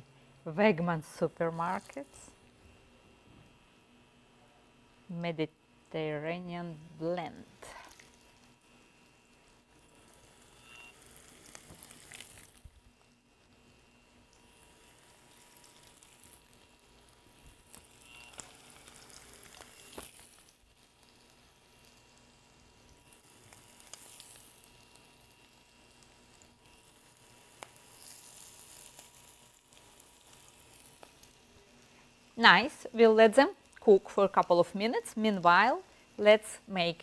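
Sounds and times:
food sizzling in oil: 0:07.9 - 0:36.6
sharp clicks of frying oil: 0:14.2 - 0:31.5, 0:33.5 - 0:34.6.

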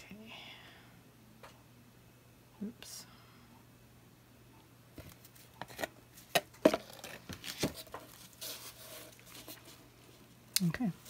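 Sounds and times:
soft rubbing: 0:08.0 - 0:10.3.

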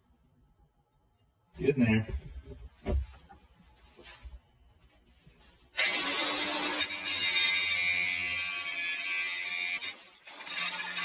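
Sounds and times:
angle grinder grinding steel: 0:05.8 - 0:11.0.

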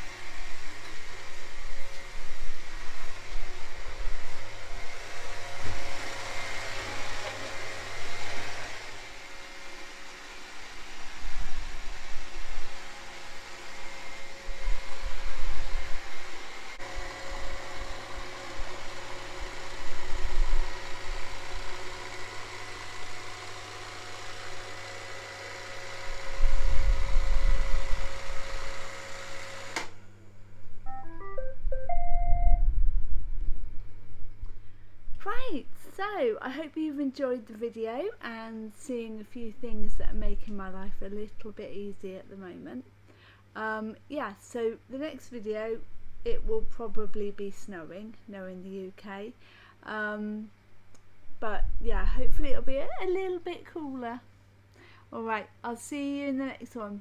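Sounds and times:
electronic beeps: 0:30.9 - 0:32.6.

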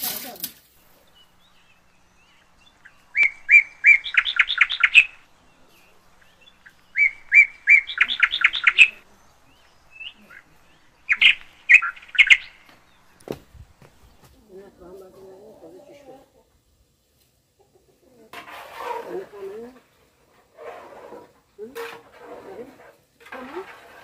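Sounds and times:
songbird singing trills: 0:00.7 - 0:16.2.

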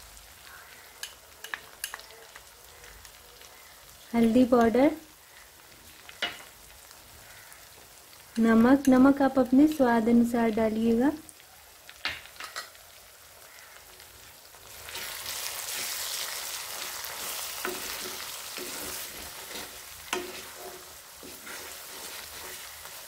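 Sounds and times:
masala sizzling in a pan: 0:00.0 - 0:23.0
wooden spatula stirring: 0:14.8 - 0:23.0.

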